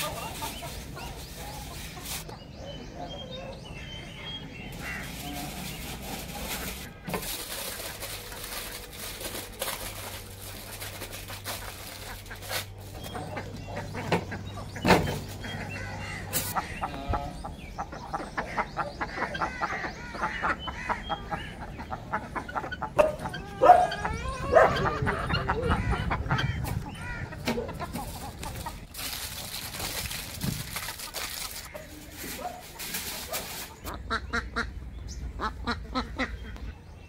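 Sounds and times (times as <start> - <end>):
foil crinkling: 0.0 - 2.3, 4.8 - 13.1, 28.0 - 33.9
poultry clucking: 0.0 - 37.0.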